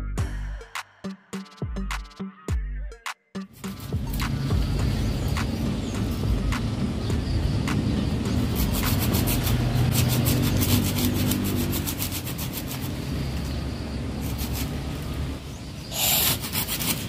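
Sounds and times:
hand saw rasping through branch: 8.3 - 17.0.

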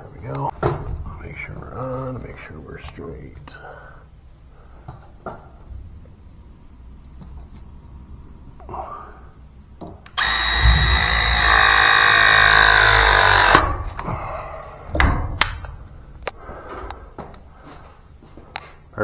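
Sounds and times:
press tool motor running: 10.2 - 13.8.

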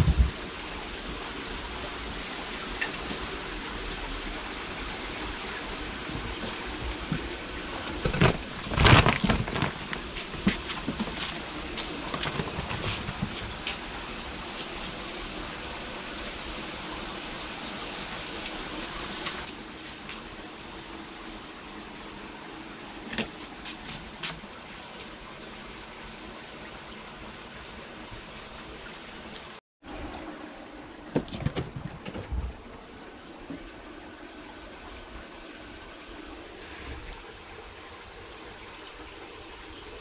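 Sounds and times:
knocks and rustling: 6.1 - 13.8, 31.1 - 32.6.

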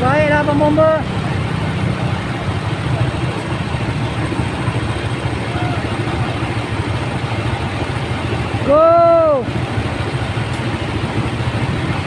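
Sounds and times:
fire engine idling: 0.0 - 12.0
faint voices: 2.0 - 9.5.

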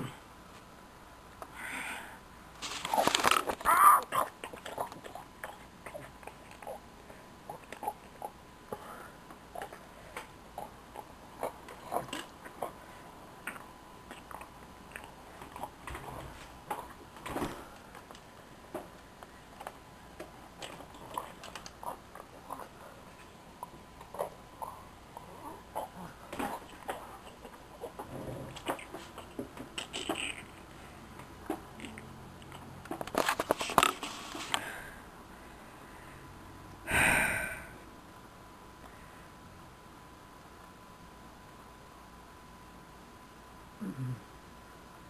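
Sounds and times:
small chewing clicks: 13.4 - 15.8
munching: 23.6 - 30.7.

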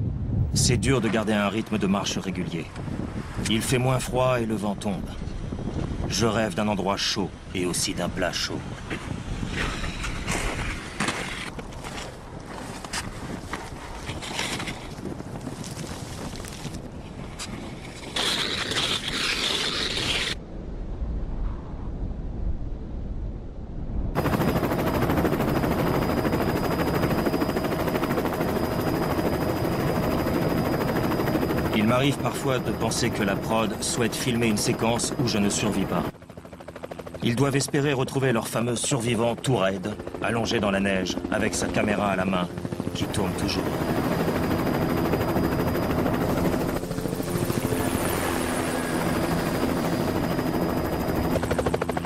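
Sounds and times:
helicopter rotor beating: 17.5 - 20.4, 24.2 - 52.0
light aircraft engine droning: 24.2 - 52.0.

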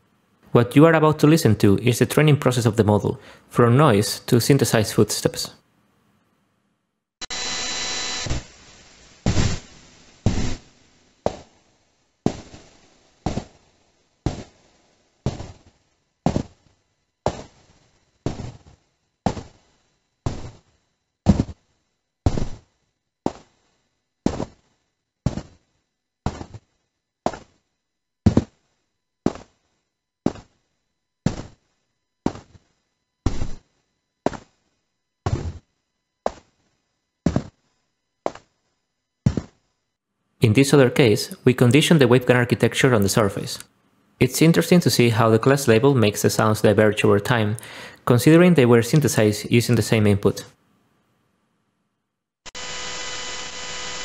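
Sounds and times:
synthesised footsteps: 9.2 - 11.6, 12.2 - 21.7, 22.3 - 23.6, 24.3 - 27.6, 28.2 - 30.6, 31.2 - 34.7, 35.3 - 36.7, 37.3 - 37.7, 38.3 - 38.6, 39.3 - 39.6.

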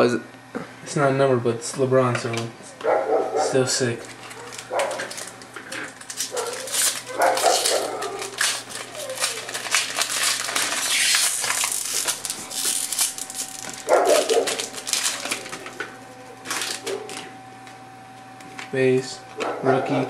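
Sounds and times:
foil wrapper crinkling and tearing: 4.0 - 17.4.

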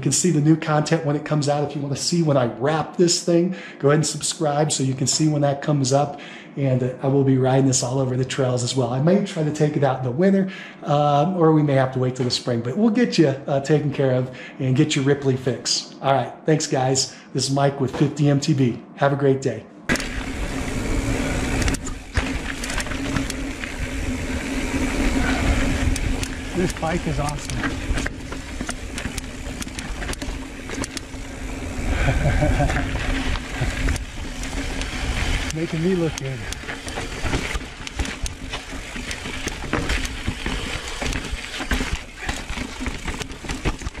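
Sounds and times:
bike tyres rumbling and rattling: 19.9 - 44.0
wind rushing over microphone: 20.2 - 37.6.

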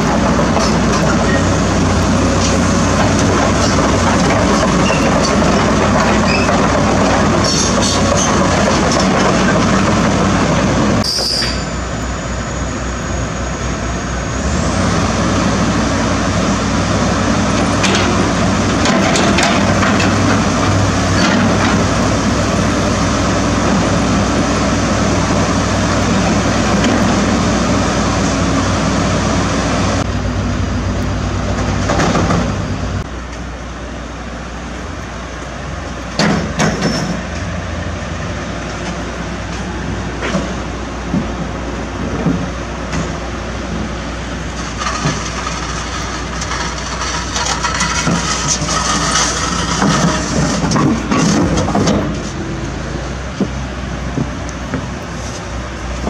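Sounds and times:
metallic clanks and squeals: 0.0 - 1.6, 2.4 - 10.2, 11.0 - 14.4, 17.6 - 22.0, 36.2 - 37.3, 44.6 - 52.4
excavator diesel engine running: 0.0 - 56.0.

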